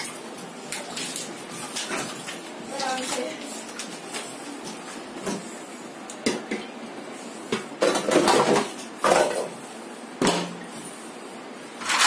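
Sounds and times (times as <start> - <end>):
kitchen utensils and dishes clattering: 7.8 - 9.6, 11.8 - 12.0.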